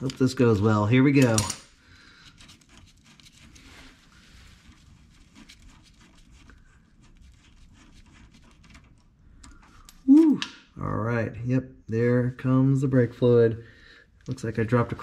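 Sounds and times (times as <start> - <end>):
faint rustling of rag: 2.1 - 9.0.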